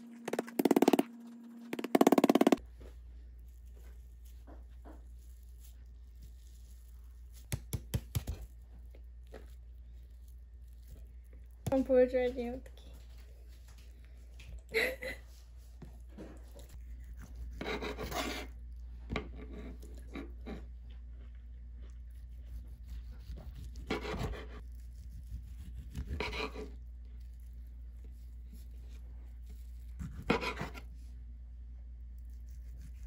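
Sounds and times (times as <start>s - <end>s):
bread knife sawing through food: 16.8s - 18.6s, 22.3s - 26.8s, 30.0s - 30.9s.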